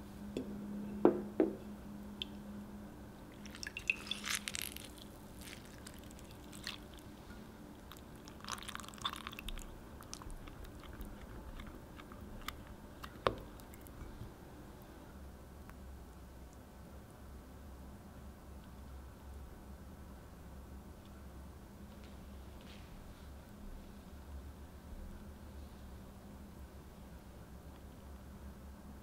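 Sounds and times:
spatula squishing thick chocolate: 3.4s - 14.1s.

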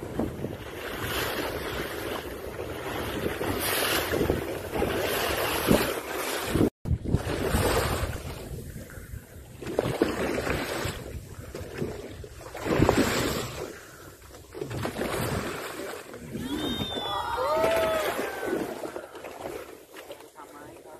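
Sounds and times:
wind buffeting microphone: 0.0s - 15.6s
sea water washing alongside boat: 0.0s - 20.9s.

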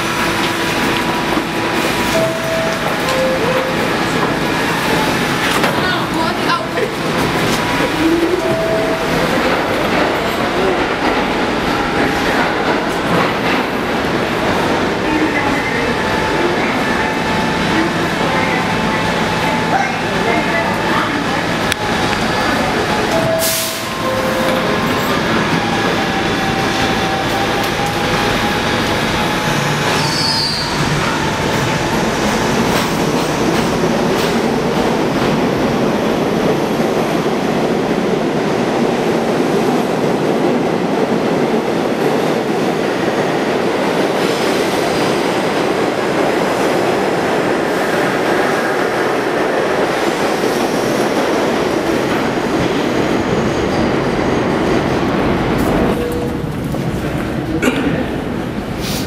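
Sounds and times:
train cars rolling and rumbling: 0.0s - 59.0s
high wheel squeal: 29.9s - 31.4s.

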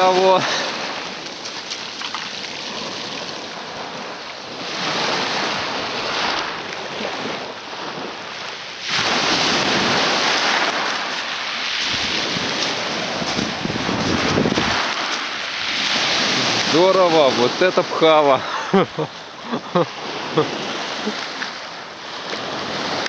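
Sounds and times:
waves washing over pebbles: 0.0s - 23.0s
wind buffeting microphone: 9.0s - 16.8s.

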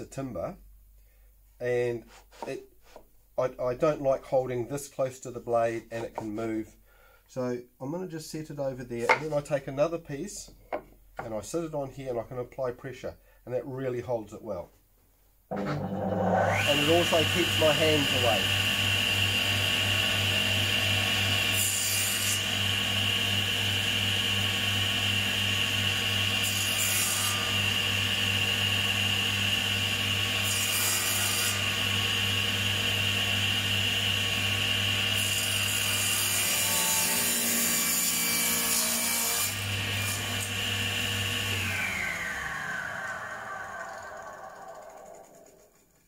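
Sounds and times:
saw blade spinning down: 15.5s - 21.3s, 41.4s - 46.0s
table saw motor hum and whine: 15.5s - 37.1s, 39.4s - 45.6s
saw blade cutting wood: 15.5s - 45.8s.

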